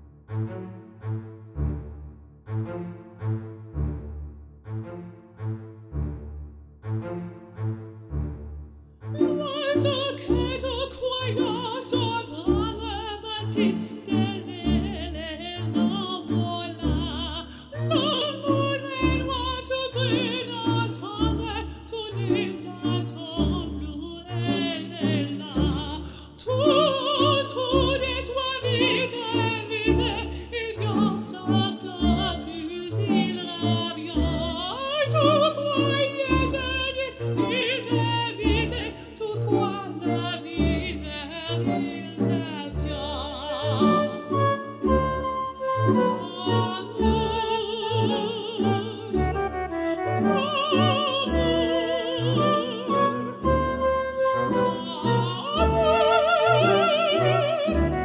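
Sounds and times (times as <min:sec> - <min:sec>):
orchestral accompaniment: 0:00.2 - 0:21.6, 0:26.6 - 0:58.0
person singing operatic phrases: 0:54.5 - 0:58.0.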